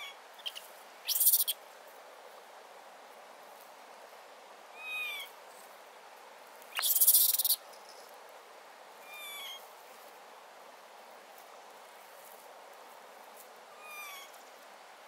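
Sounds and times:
bird calling: 0.0s - 1.6s, 6.7s - 7.6s, 13.8s - 14.4s.

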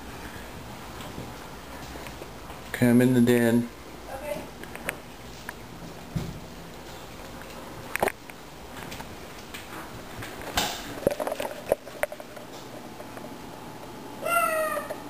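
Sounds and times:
steady low hiss: 0.0s - 14.3s
footsteps: 4.9s - 7.6s.

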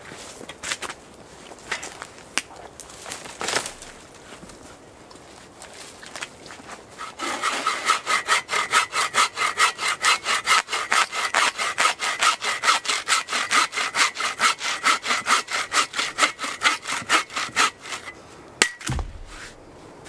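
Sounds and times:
bow saw cutting log: 7.0s - 18.2s.

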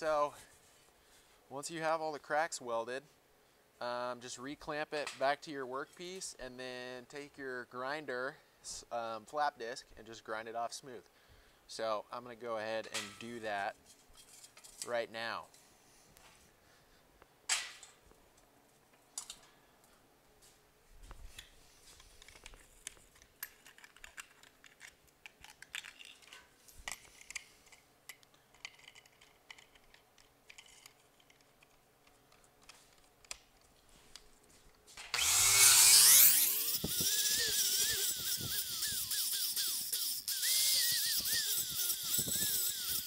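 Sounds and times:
angle grinder grinding steel: 35.2s - 43.0s.

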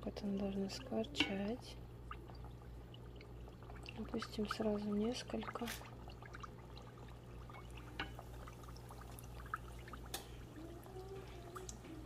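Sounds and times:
low steady hum: 0.0s - 12.0s
oil sizzling in deep fryer: 3.0s - 12.0s.

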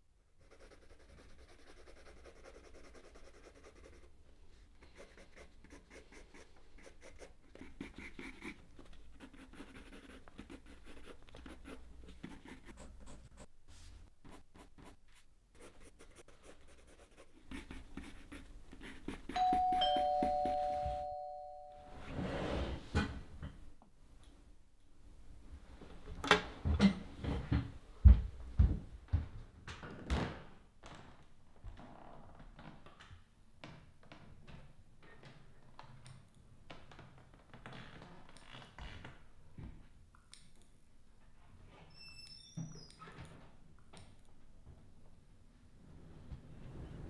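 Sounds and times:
pencil scratching on paper: 0.4s - 4.2s, 4.8s - 20.8s
two-tone doorbell chime: 19.4s - 22.0s
scraping rustling noise: 21.9s - 23.0s.

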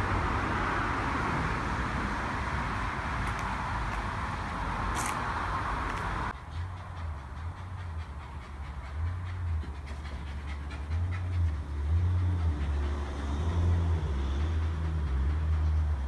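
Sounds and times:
dog panting: 3.2s - 16.0s.

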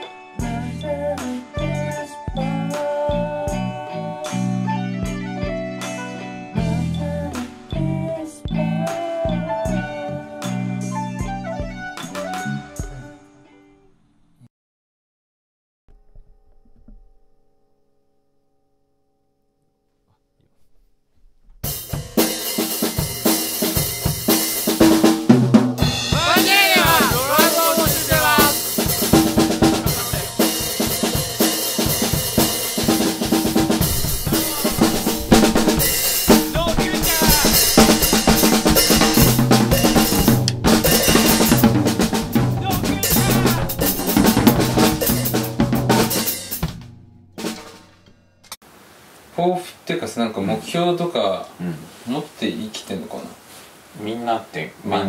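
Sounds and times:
rock music with drums: 0.0s - 13.1s, 21.6s - 48.5s.

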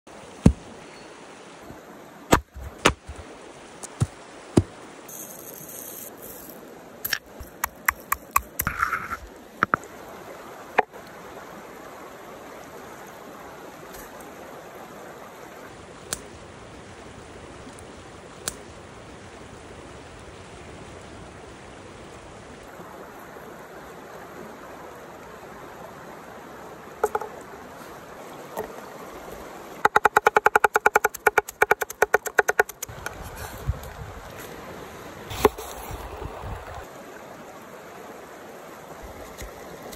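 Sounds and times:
stream water rushing: 0.1s - 39.9s
sharp knocks and clicks: 27.0s - 27.3s, 29.8s - 32.9s.

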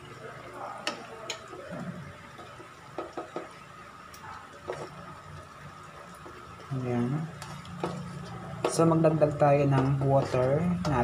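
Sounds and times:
spatula tapping pan: 2.3s - 3.6s, 7.4s - 11.0s
spatula stirring food in wok: 7.3s - 11.0s.

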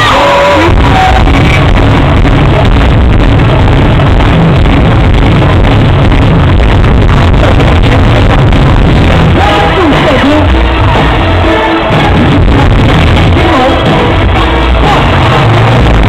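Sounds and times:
deep rumble: 0.0s - 16.0s.

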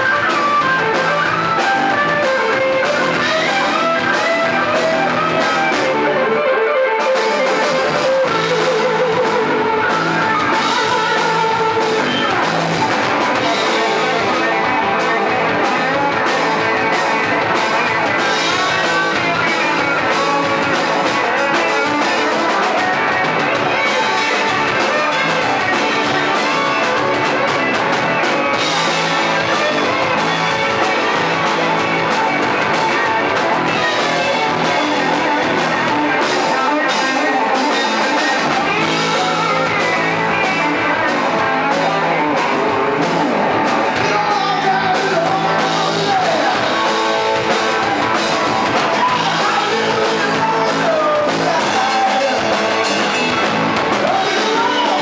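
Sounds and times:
drum kit: 0.0s - 55.0s
electric guitars: 0.0s - 55.0s.

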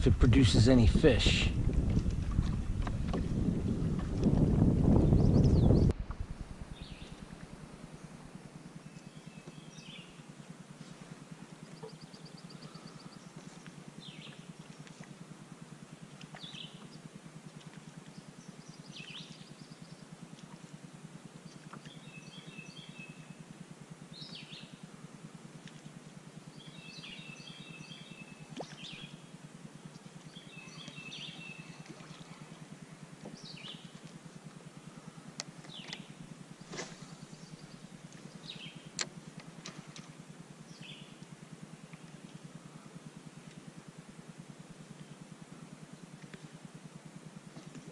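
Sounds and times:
songbirds chirping: 0.0s - 1.6s, 3.9s - 14.7s, 21.4s - 23.4s, 24.1s - 24.8s, 26.4s - 29.3s, 29.9s - 32.1s, 33.2s - 34.1s, 34.7s - 41.2s
steady low hum: 0.0s - 47.9s.

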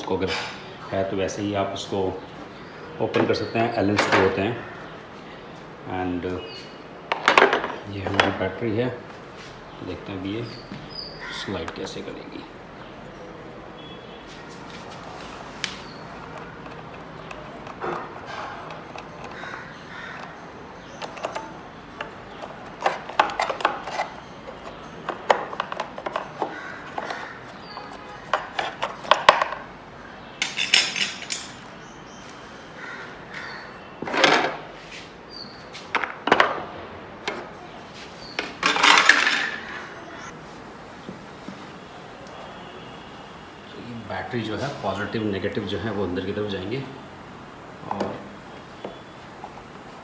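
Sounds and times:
battery scraping on metal tray: 22.3s - 29.4s.

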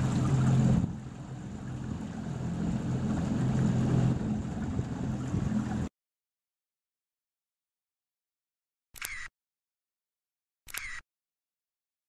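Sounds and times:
faint water noise: 0.0s - 5.9s
small boat motor humming: 0.0s - 5.9s.

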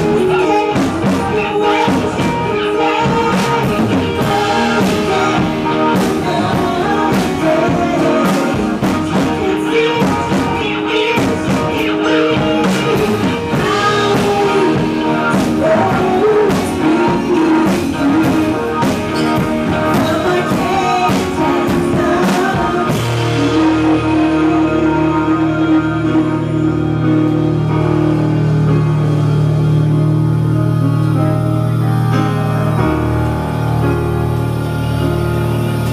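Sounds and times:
live rock band playing: 0.0s - 35.9s
person singing: 0.0s - 35.9s
held low tones: 23.3s - 35.9s.

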